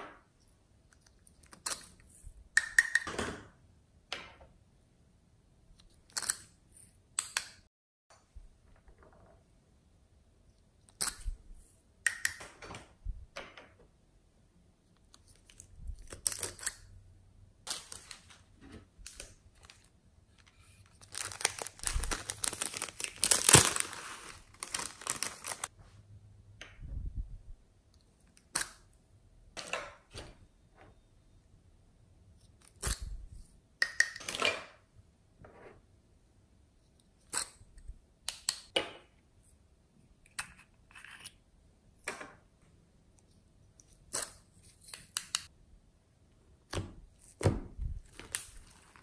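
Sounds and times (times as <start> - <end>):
slime crackling and tearing: 21.0 - 25.7.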